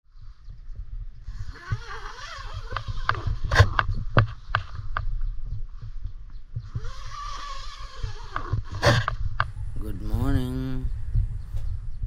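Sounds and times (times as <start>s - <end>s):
tent door unzipping: 1.3s - 3.9s, 6.7s - 9.2s
sharp zipper clicks: 1.3s - 4.7s, 6.7s - 9.2s.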